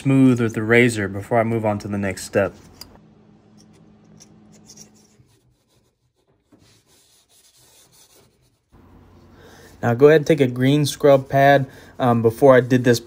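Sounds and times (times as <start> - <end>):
razor blade scraping metal: 3.6 - 6.1.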